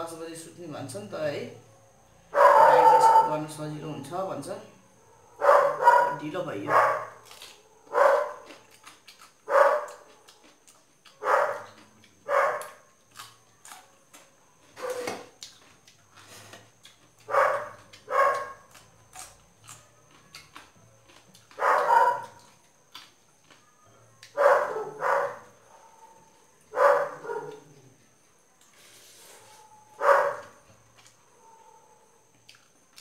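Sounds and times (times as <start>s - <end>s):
dog barking: 2.2s - 3.4s, 5.1s - 7.2s, 7.8s - 8.6s, 9.4s - 10.3s, 11.2s - 12.9s, 14.8s - 15.3s, 17.3s - 18.8s, 21.5s - 22.5s, 24.3s - 27.8s, 29.4s - 30.7s.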